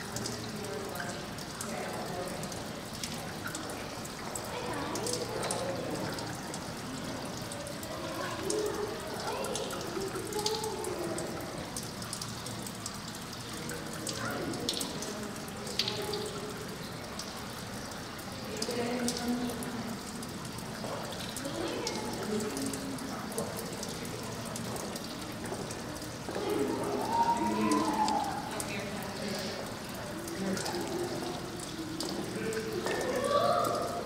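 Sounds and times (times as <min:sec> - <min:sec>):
running water: 0:00.0 - 0:34.0
indistinct voices: 0:25.8 - 0:34.0.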